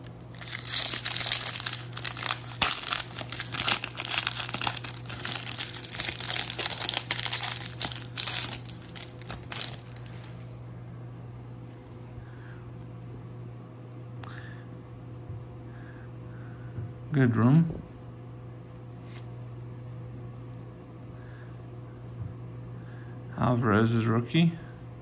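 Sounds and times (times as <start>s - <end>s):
foil wrapper crinkling and tearing: 0.0s - 10.5s.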